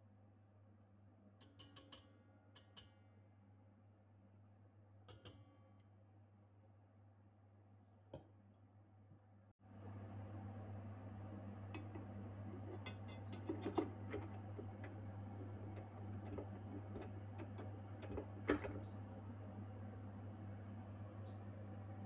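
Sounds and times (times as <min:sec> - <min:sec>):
steady low hum: 0:09.7 - 0:22.0
mixer attachment clicks and knocks: 0:11.8 - 0:18.9.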